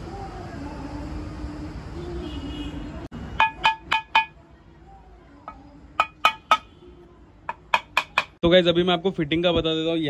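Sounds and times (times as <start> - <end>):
metal tool tapping on metal: 3.4 - 4.4, 5.5 - 6.7, 7.5 - 8.4.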